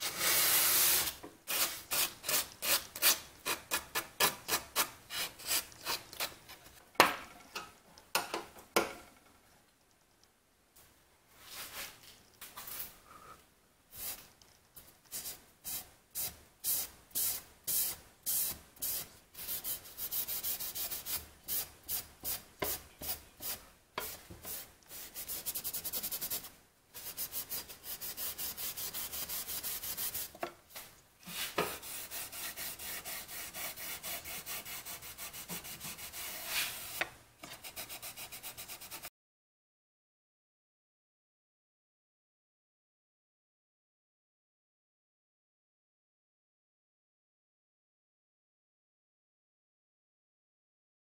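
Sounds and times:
sandpaper rasping on wood: 27.0s - 30.3s, 31.3s - 39.1s.

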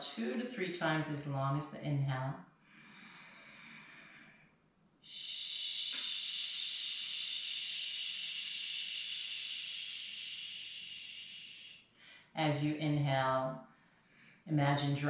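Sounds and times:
woman exhaling through mouth: 5.1s - 11.8s.

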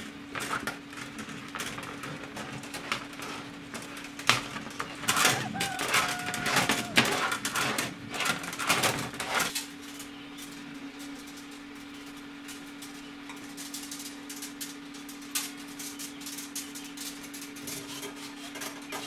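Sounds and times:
metal tubing scraping a can: 13.5s - 19.0s.

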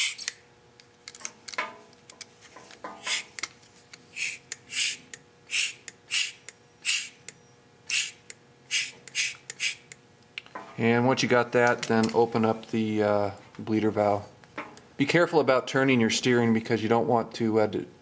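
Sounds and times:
hand vacuum pump puffs: 3.0s - 3.4s, 4.1s - 7.3s, 7.9s - 9.9s.

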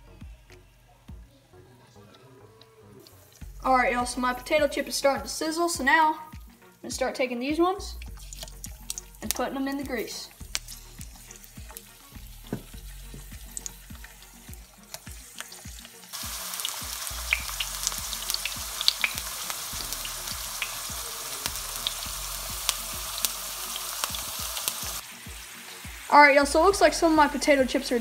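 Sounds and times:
potato slices sizzling in oil: 7.9s - 28.0s.

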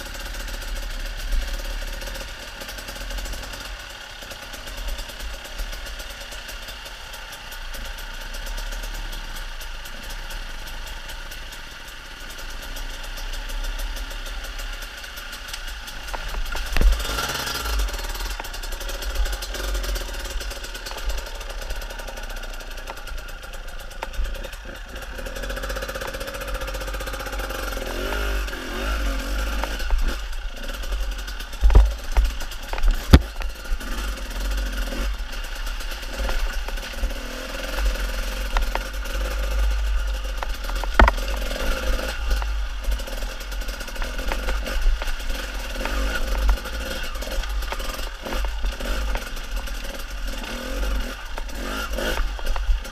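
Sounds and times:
dirt bike engine revving: 0.0s - 52.9s
sharp knocks from rough ground: 16.0s - 18.6s, 31.6s - 33.6s, 40.4s - 43.0s.

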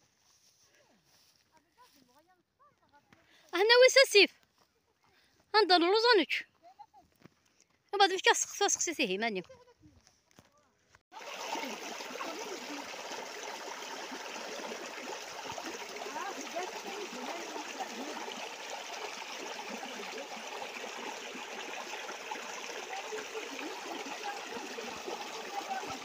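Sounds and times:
stream trickling over stones: 11.1s - 26.0s.

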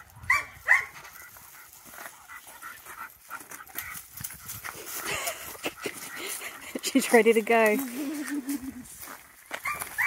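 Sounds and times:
dog yipping: 0.3s - 1.0s, 9.6s - 10.0s
dog panting: 1.2s - 7.3s.

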